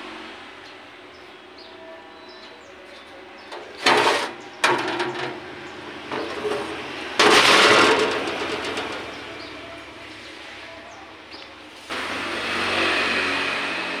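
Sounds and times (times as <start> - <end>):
metal scraping and knocking: 3.5 - 9.6.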